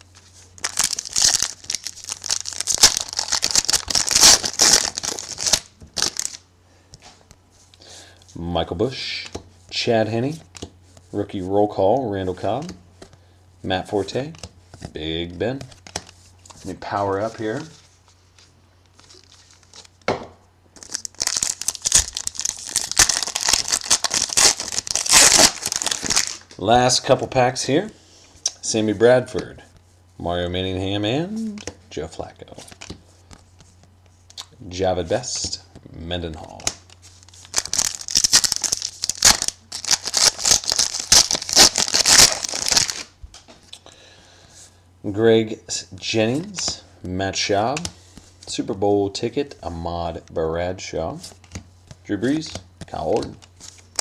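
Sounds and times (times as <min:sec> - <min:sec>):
wrapper tearing and crackling: 0:00.6 - 0:06.4, 0:20.8 - 0:26.5, 0:36.6 - 0:43.1.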